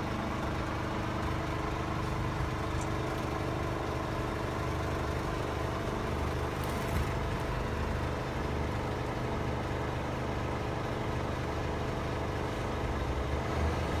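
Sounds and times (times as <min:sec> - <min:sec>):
diesel truck engine idling: 0:00.0 - 0:14.0.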